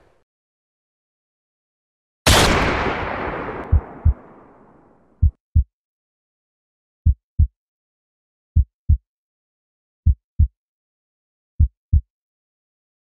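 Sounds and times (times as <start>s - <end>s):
slow heartbeat thumps: 3.3s - 4.6s, 5.2s - 5.7s, 11.6s - 12.0s.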